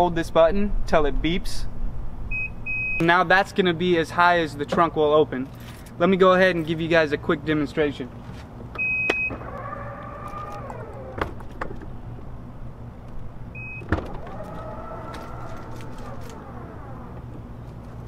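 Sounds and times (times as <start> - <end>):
electric motor whine: 9.3 - 11.6, 14.0 - 17.6.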